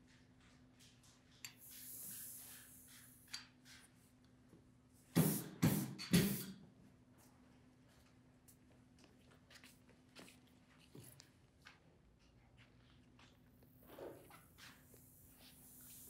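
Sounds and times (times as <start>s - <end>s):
ink roller hissing: 1.5s - 3.8s, 13.8s - 16.0s
ink roller rolling strokes: 1.5s - 3.9s.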